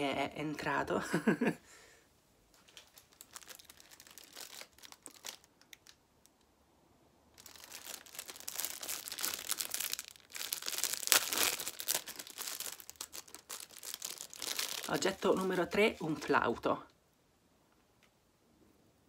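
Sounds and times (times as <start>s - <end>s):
rustling and crinkling: 2.4s - 6.5s, 7.3s - 16.7s.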